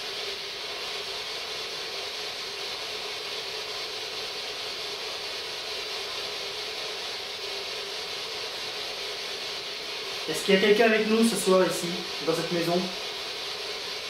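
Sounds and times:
radio static hiss: 0:10.1 - 0:13.1.

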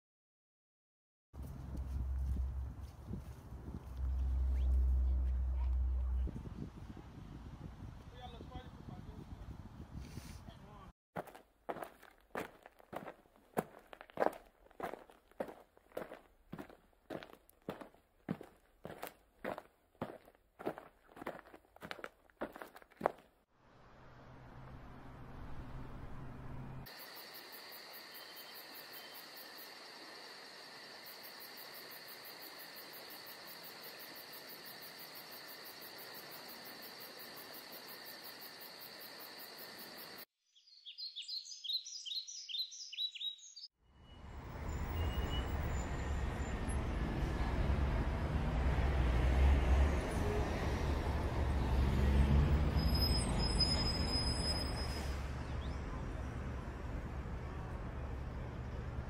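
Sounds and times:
night insects trilling: 0:26.9 - 0:40.2
bird chirping: 0:40.4 - 0:44.3.

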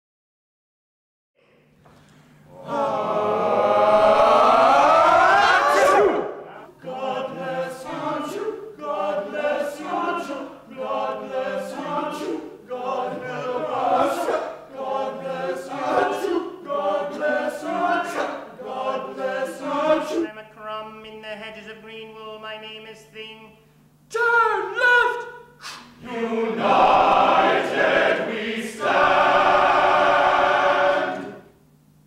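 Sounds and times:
male chorus singing: 0:02.5 - 0:20.3, 0:26.0 - 0:31.5.

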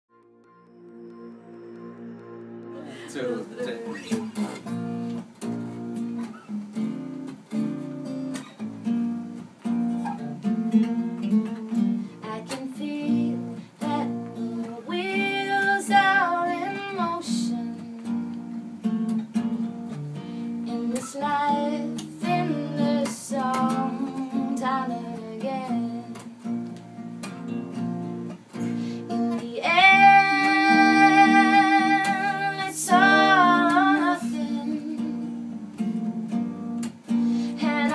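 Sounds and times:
strummed acoustic guitar: 0:00.1 - 0:37.9
acoustic bass guitar: 0:00.4 - 0:37.9
people singing: 0:12.4 - 0:17.8, 0:20.8 - 0:26.1, 0:29.4 - 0:35.4, 0:37.6 - 0:37.9.

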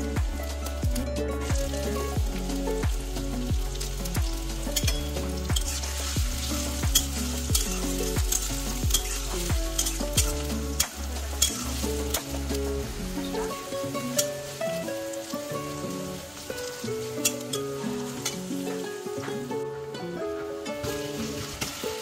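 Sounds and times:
onions sizzling in hot oil: 0:00.0 - 0:19.6, 0:20.5 - 0:22.0
background music with deep bass: 0:00.0 - 0:19.8
metal spatula scraping: 0:03.7 - 0:18.6.

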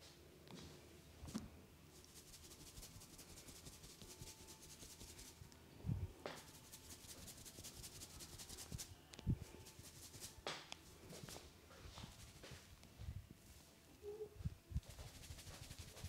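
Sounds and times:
hands rubbing hair: 0:01.3 - 0:05.4, 0:06.3 - 0:12.7, 0:14.8 - 0:16.0.

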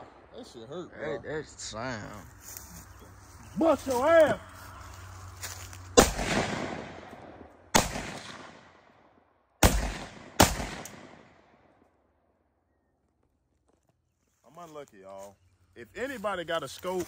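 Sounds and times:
rifle shots with long echo: 0:06.0 - 0:11.9.

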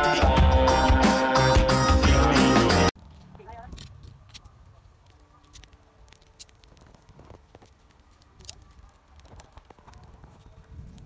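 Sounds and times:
wood fire crackling and popping: 0:03.0 - 0:11.0.

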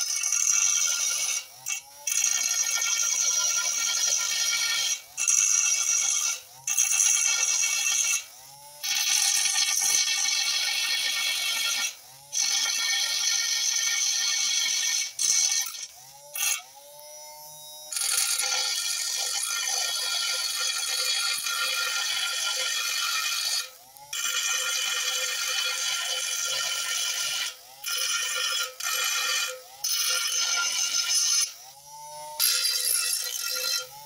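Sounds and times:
grinder grinding metal: 0:00.0 - 0:34.0
motor whine: 0:15.8 - 0:18.2, 0:31.4 - 0:34.0.

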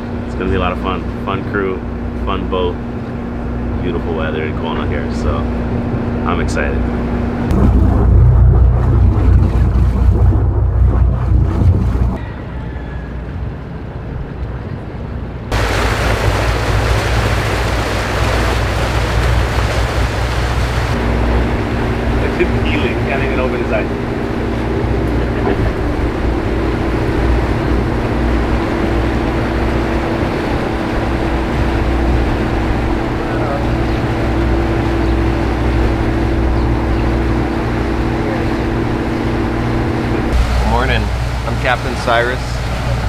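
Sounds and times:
propeller wash rushing: 0:00.0 - 0:12.2, 0:15.5 - 0:43.0
boat engines droning: 0:00.0 - 0:43.0.

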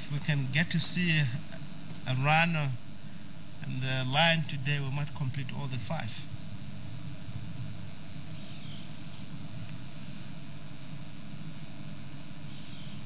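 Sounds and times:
constant hiss: 0:00.0 - 0:13.0.

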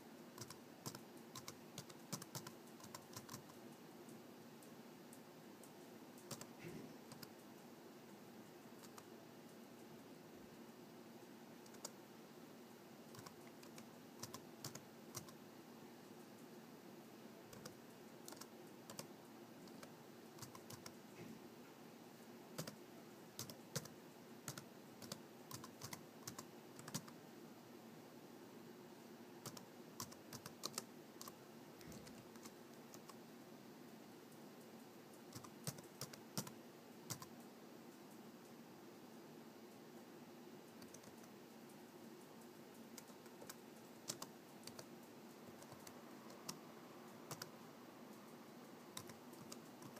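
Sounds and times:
faint low hum: 0:00.0 - 0:49.9
laptop keyboard typing: 0:00.3 - 0:03.6, 0:05.6 - 0:07.4, 0:08.8 - 0:09.1, 0:11.6 - 0:12.0, 0:13.0 - 0:15.4, 0:17.5 - 0:21.0, 0:22.6 - 0:27.2, 0:29.4 - 0:33.2, 0:35.2 - 0:37.4, 0:40.7 - 0:41.4, 0:42.4 - 0:47.6, 0:48.2 - 0:49.9.

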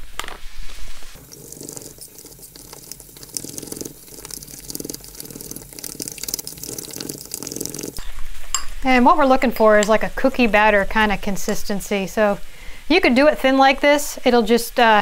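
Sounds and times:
fork stirring batter in a bowl: 0:01.2 - 0:08.0.

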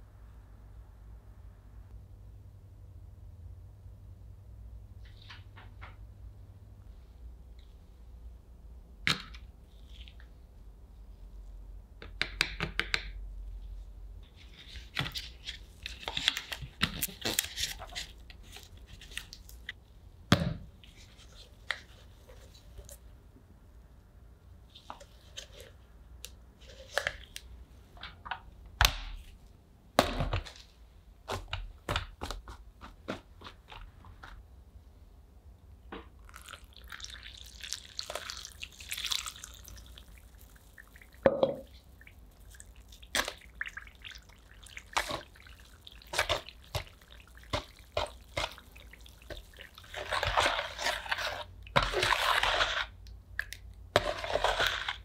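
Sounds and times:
water poured onto powder: 0:36.2 - 0:41.2
metal spoon stirring plaster: 0:36.7 - 0:55.0.

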